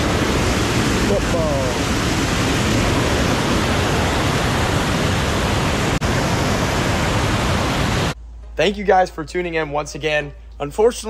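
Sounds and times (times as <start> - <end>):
water rushing over dam: 0.0 - 8.2.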